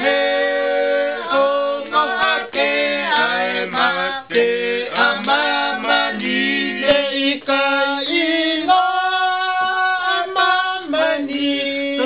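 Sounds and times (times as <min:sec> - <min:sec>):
group singing together: 0:00.0 - 0:12.0.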